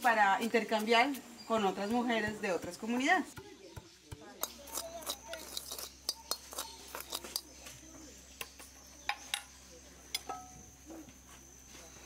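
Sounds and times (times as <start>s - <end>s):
metal spoon scraping strainer: 4.4s - 7.5s.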